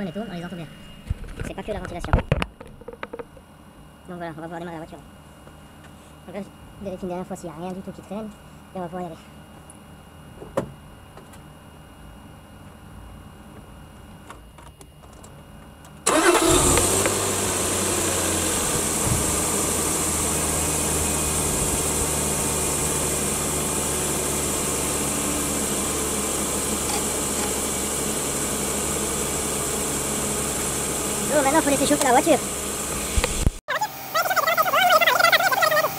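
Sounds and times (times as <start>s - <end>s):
car engine starting and idling: 16.0s - 35.9s.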